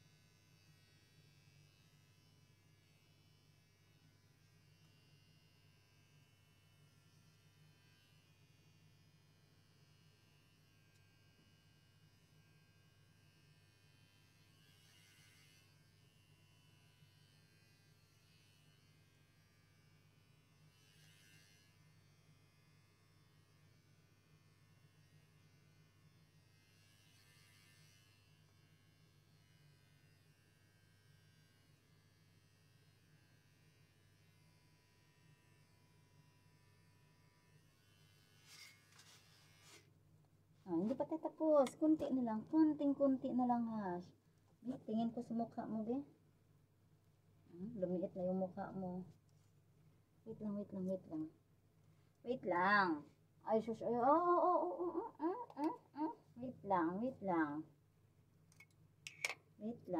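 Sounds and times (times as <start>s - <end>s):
electric hair clipper buzzing: 13.6s - 19.2s, 26.6s - 30.4s, 35.0s - 39.8s
soft hissy sounds: 37.8s - 40.0s.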